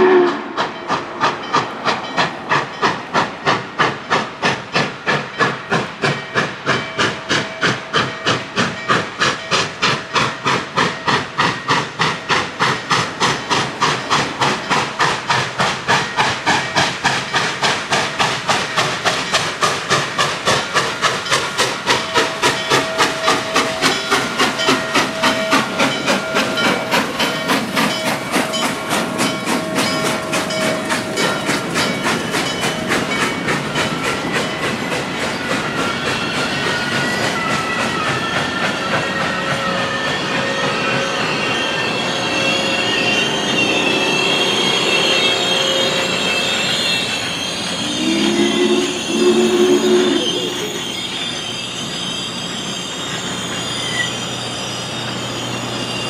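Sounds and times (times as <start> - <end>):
steam locomotive chuffing: 0.0 - 56.0
train cars clickety-clack: 0.0 - 56.0
wheel squeal: 20.8 - 56.0.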